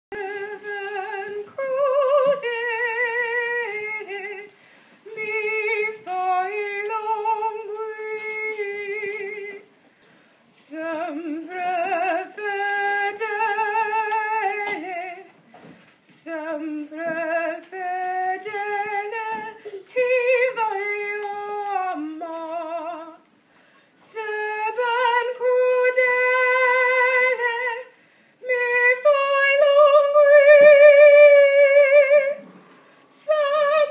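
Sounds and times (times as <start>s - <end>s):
singer breathing: 4.5s - 5.1s, 9.8s - 10.5s, 23.4s - 24.0s, 27.9s - 28.4s, 32.6s - 33.1s.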